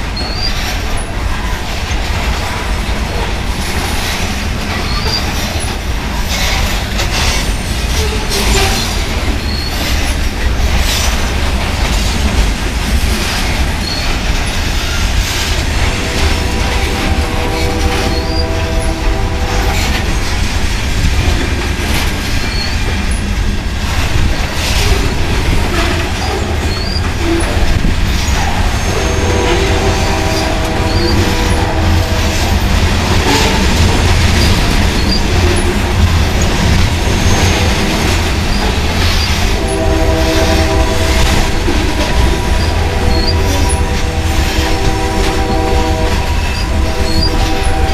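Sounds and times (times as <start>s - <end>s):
train wheels rumbling on rail: 0.0s - 47.9s
multi-pitch steady horn tone: 15.8s - 20.1s, 28.9s - 33.9s, 39.5s - 47.9s.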